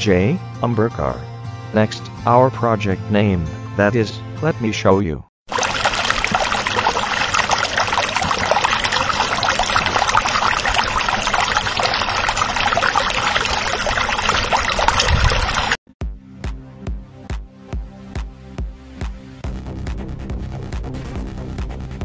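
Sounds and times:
pouring splashing water: 5.5 - 15.8.

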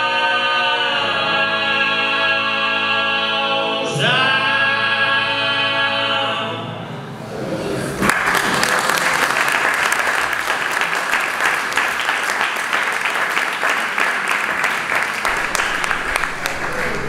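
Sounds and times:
audience applauding: 8.0 - 17.0.

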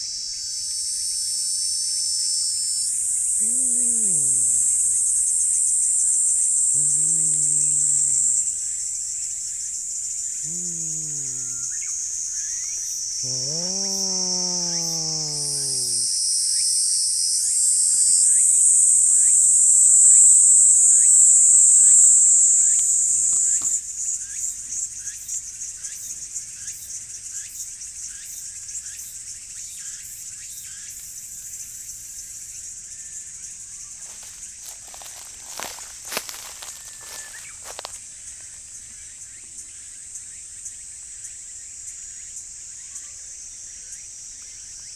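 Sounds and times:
shrill chorus of insects: 0.0 - 23.8, 34.0 - 38.0
cat growling low moans: 3.3 - 5.0, 6.6 - 8.6, 10.3 - 12.6, 13.2 - 16.1.

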